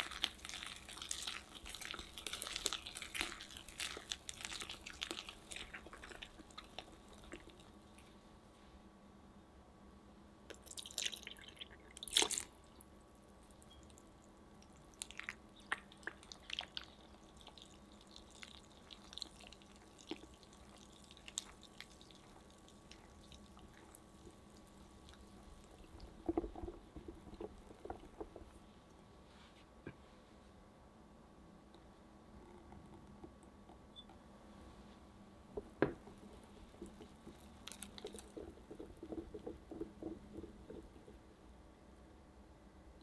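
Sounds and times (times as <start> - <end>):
whisk squelching in batter: 0.0 - 7.7.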